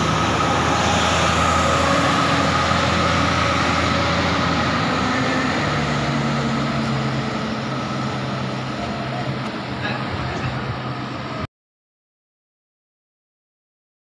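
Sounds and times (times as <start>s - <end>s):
bus diesel engine pulling away: 0.0s - 11.5s.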